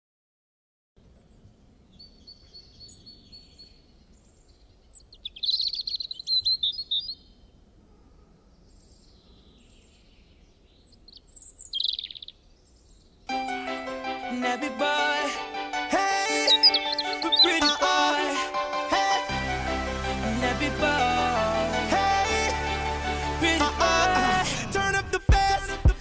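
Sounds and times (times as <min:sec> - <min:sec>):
small birds chirping: 0:01.2 - 0:13.3, 0:16.3 - 0:18.4.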